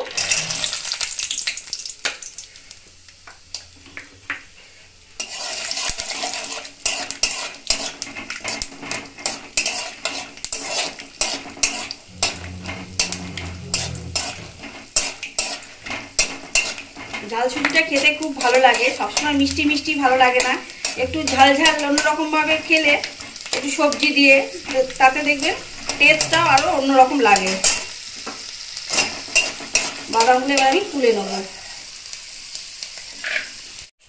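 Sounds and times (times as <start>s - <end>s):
peanuts sizzling in hot oil: 0.0s - 34.0s
metal spatula scraping pan: 5.2s - 28.0s.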